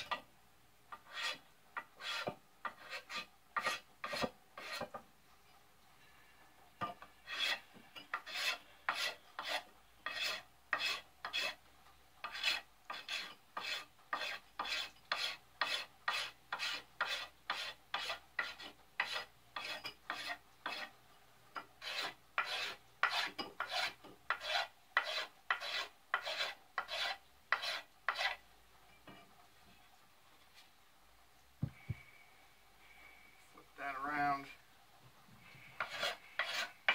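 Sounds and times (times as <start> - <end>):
blade scraping wooden handle: 0.9 - 5.0, 7.2 - 11.6, 12.2 - 20.9, 21.8 - 28.4, 35.6 - 36.9.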